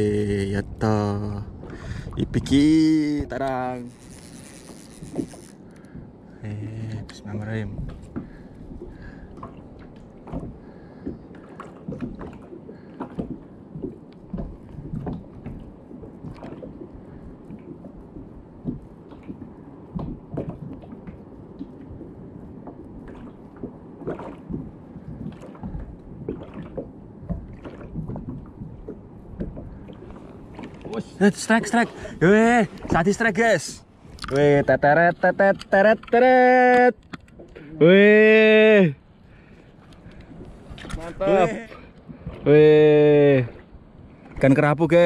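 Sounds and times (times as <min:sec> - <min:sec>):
waves lapping against boat hull: 0:00.0 - 0:45.0
light knocks and splashes: 0:07.6 - 0:34.7, 0:39.5 - 0:42.5.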